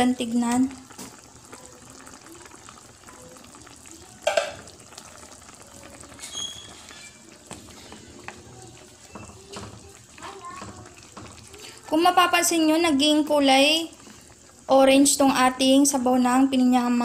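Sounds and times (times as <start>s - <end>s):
broth bubbling: 0.0s - 17.0s
wooden spatula stirring in pan: 4.2s - 14.7s.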